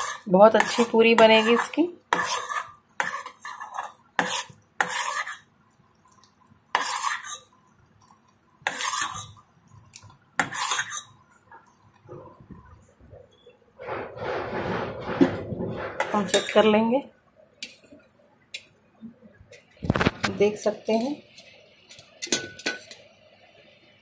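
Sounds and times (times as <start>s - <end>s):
metal spoon scraping pot: 0.0s - 5.5s, 6.7s - 7.6s, 8.6s - 9.4s, 10.4s - 11.2s, 13.3s - 16.8s
syrup bubbling: 2.2s - 12.1s.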